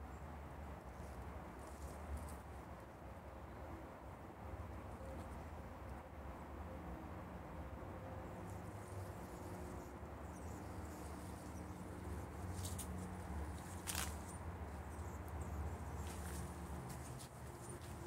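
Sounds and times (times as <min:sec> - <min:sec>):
cat scratching in soil and leaves: 0:00.8 - 0:02.9, 0:08.5 - 0:18.0.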